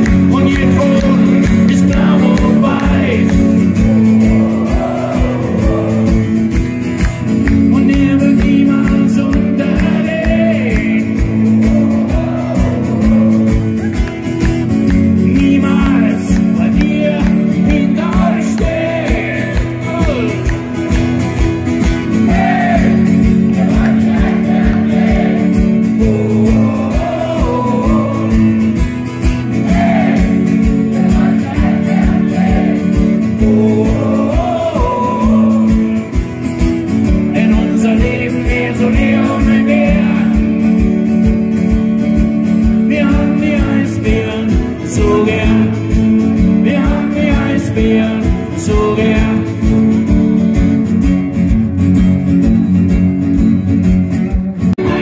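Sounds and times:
person singing: 0:00.0 - 0:06.5, 0:22.3 - 0:28.8, 0:29.6 - 0:36.2, 0:37.2 - 0:40.8, 0:54.2 - 0:55.0
acoustic guitars strummed: 0:00.0 - 0:55.0.

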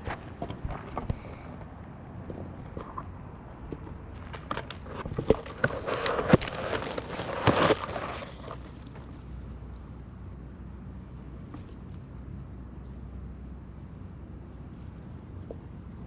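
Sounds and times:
rustling with clicks and knocks: 0:00.0 - 0:09.1.

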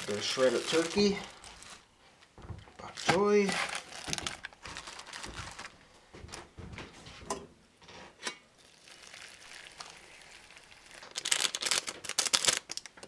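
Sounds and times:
loud crackling rustle: 0:00.0 - 0:01.9, 0:02.9 - 0:05.8, 0:08.8 - 0:13.0
water pouring from a kettle: 0:08.6 - 0:11.0.

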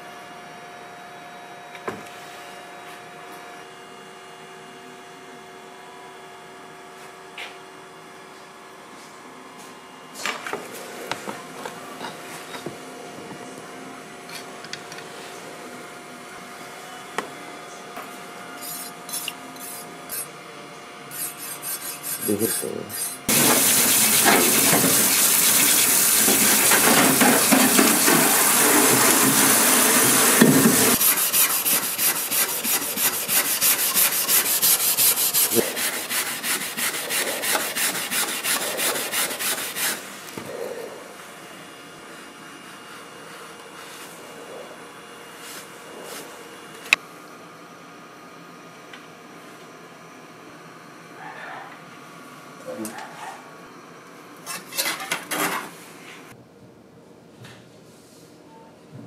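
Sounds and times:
tap water rushing into sink: 0:23.3 - 0:31.0
brush scrubbing metal blade: 0:23.3 - 0:40.0.

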